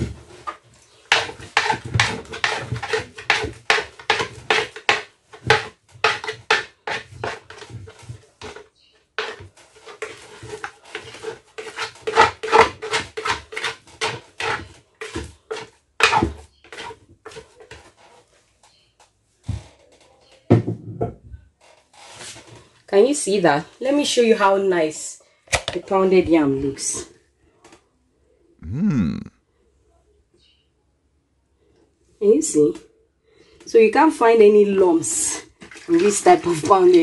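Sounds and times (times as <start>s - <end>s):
scoop scraping pounded yam: 0.0s - 18.2s, 35.6s - 37.0s
wooden pestle pressing: 0.4s - 8.6s.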